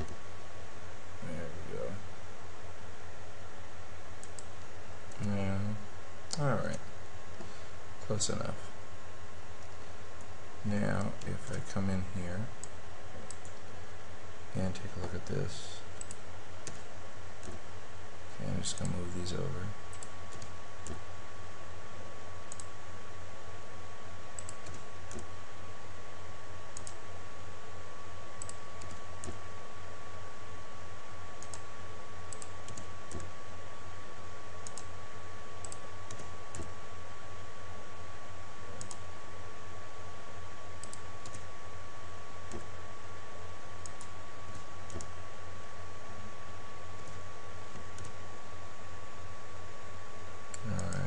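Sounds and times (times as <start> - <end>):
low electrical hum: 0.0 - 51.0
thin steady whine: 0.0 - 51.0
keyboard and mouse clicks: 32.3 - 33.3, 43.8 - 45.1.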